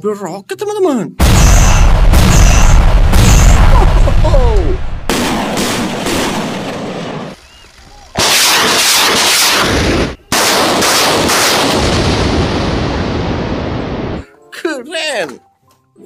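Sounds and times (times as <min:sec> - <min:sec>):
rockets firing in salvo: 0:01.2 - 0:07.4, 0:08.1 - 0:14.2.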